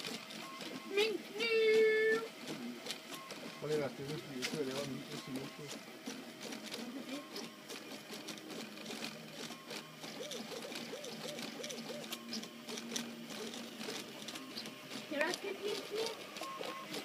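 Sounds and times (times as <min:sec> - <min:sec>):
stepper motors whining: 0:00.0 - 0:17.0.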